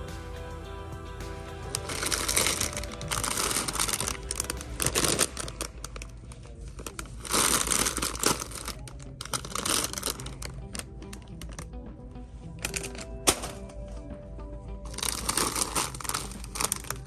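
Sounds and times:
plastic chip bags crinkling: 1.7 - 11.8, 12.6 - 13.8, 14.9 - 17.0.

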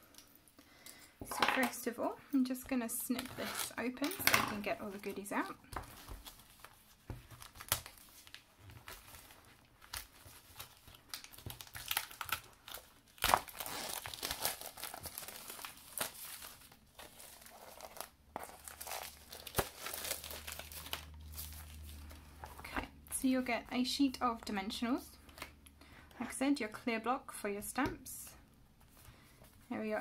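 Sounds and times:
plastic wrap crinkling: 2.9 - 22.8.

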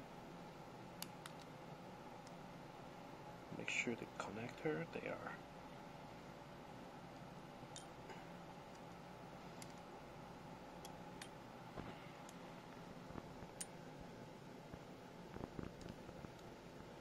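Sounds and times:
low steady hum: 0.0 - 17.0
small metal clicks: 7.7 - 8.0, 10.8 - 11.4.

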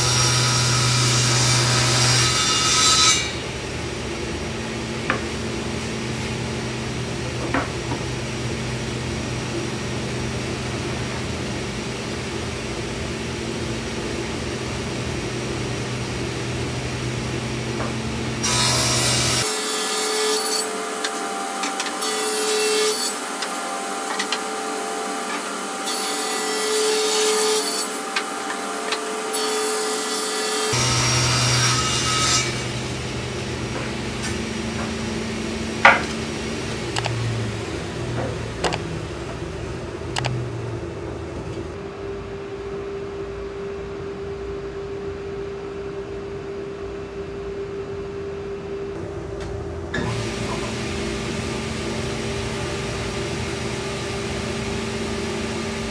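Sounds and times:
table saw humming: 0.0 - 41.9
saw blade cutting plywood: 18.4 - 32.8.

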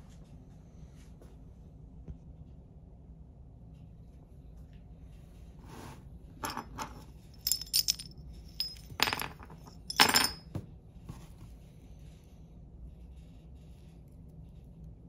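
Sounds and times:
metal clamp pieces clinking: 6.4 - 10.4.

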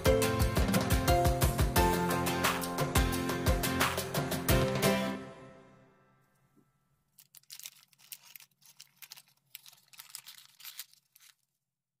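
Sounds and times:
paper rustling and crinkling: 7.2 - 11.7.

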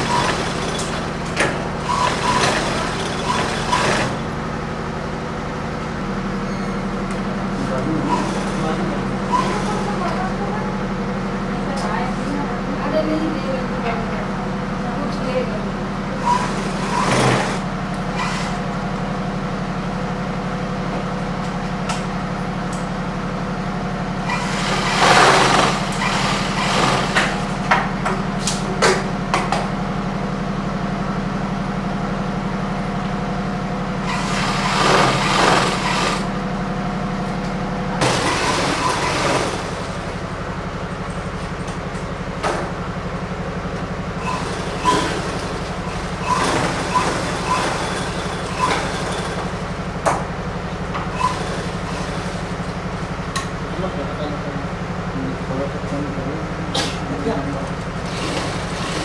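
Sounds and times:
bursts of stitching noise: 0.0 - 4.4, 7.7 - 10.2, 16.2 - 18.7, 24.2 - 27.6, 34.0 - 36.4, 38.0 - 40.2, 44.2 - 49.8, 51.0 - 53.0, 57.8 - 59.0
sewing machines humming: 0.0 - 59.0.

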